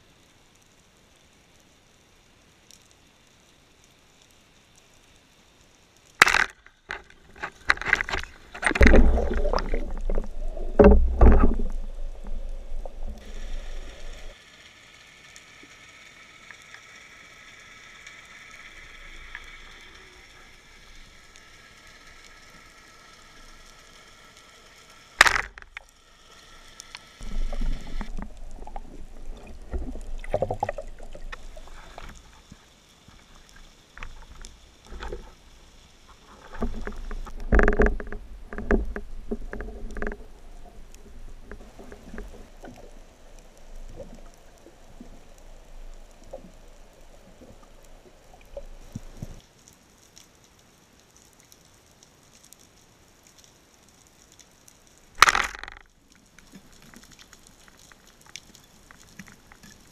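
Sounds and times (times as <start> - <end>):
knocks and thuds underwater: 6.2 - 13.2, 27.2 - 31.5, 36.6 - 40.3, 55.2 - 55.8
sharp click underwater: 6.2 - 14.3, 25.2 - 25.9, 55.2 - 55.9
rushing water: 6.2 - 50.5.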